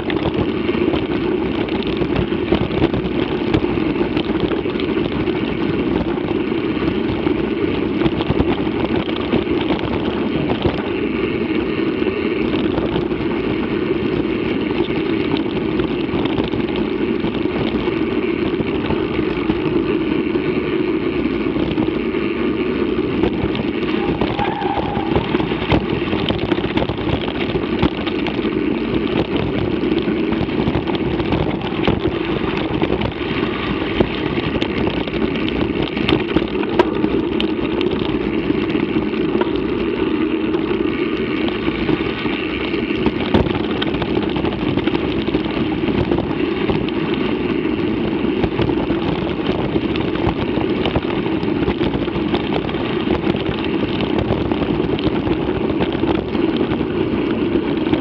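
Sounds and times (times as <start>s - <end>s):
bike tyre rumble: 0.0s - 58.0s
wind: 0.0s - 58.0s
bike knocks and rattles: 23.1s - 58.0s.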